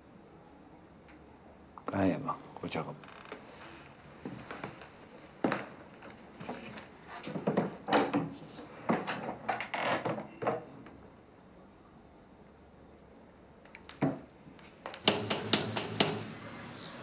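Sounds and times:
door knocks and rattles: 15.0 - 16.5.

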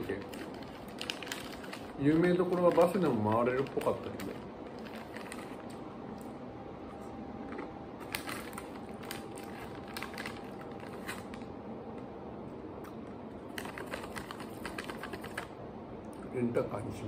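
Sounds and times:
plastic snack bag crinkling: 0.0 - 5.8, 7.5 - 11.5, 13.4 - 15.5
crunchy snack being chewed: 7.4 - 11.4, 12.8 - 15.5.

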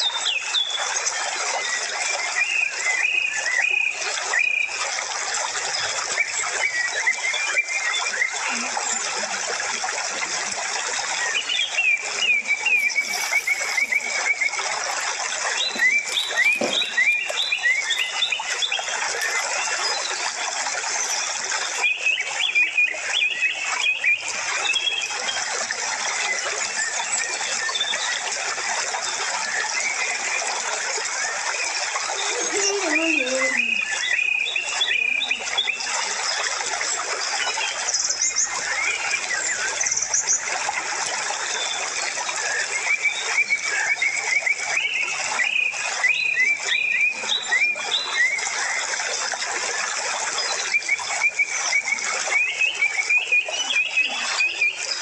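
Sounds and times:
running water rushing: 0.0 - 55.0
birds chirping: 11.3 - 25.1, 31.9 - 35.8.

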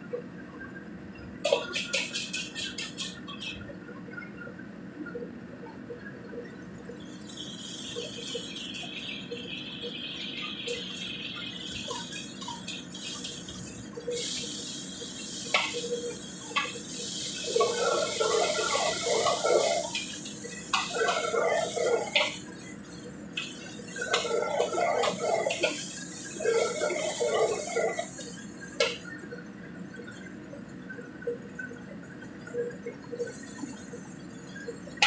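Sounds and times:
wok sizzling: 1.5 - 3.5, 10.3 - 29.3.

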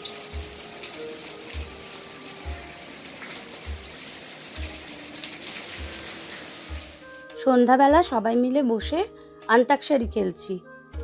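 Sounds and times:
rain hissing: 0.0 - 7.2
background music with soft beat: 0.0 - 11.0.

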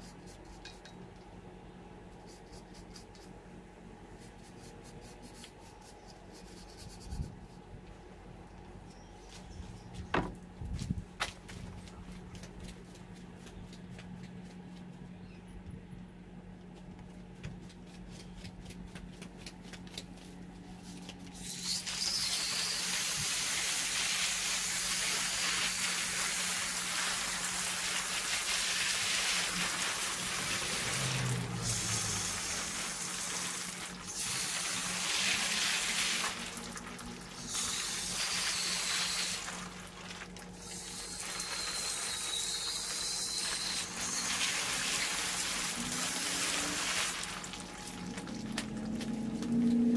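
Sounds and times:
quiet low hum: 0.0 - 21.5, 45.2 - 49.9.

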